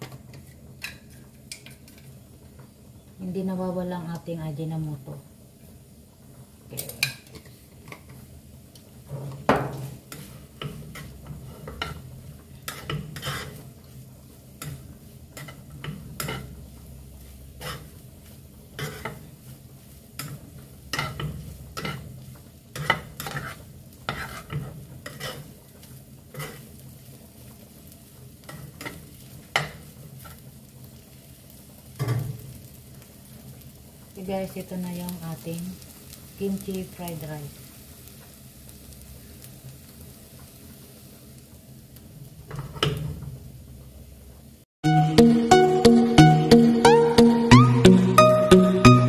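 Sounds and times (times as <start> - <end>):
light sizzle: 0.0 - 44.7
spatula scraping frying pan: 9.1 - 27.0.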